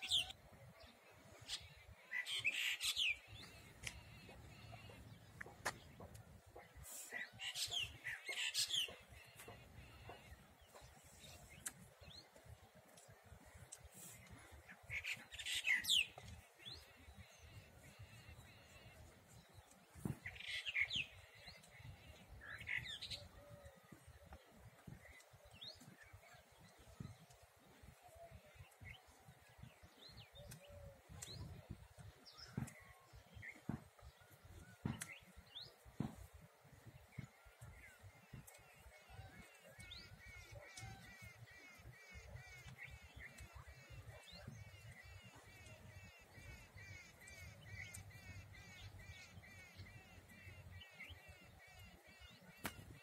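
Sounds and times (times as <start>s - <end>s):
bird chirping: 0.0s - 53.0s.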